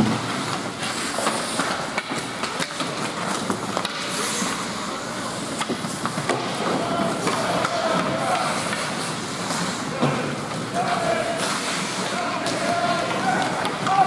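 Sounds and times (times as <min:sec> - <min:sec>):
hockey sticks clacking: 0:00.0 - 0:14.0
skates scraping ice: 0:00.0 - 0:14.0
puck banging against boards: 0:05.5 - 0:14.0.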